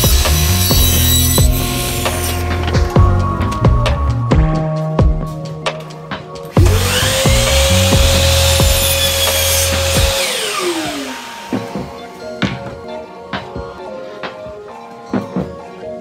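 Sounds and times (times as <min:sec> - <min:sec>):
miter saw motor whining: 0:00.0 - 0:02.7, 0:06.6 - 0:12.1
saw blade cutting wood: 0:00.0 - 0:02.9, 0:06.6 - 0:12.0
background music with a beat: 0:00.0 - 0:16.0.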